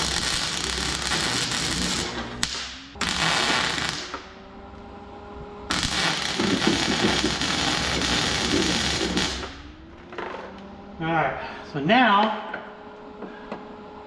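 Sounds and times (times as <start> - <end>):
welder crackling: 0.0 - 4.4, 5.7 - 9.8.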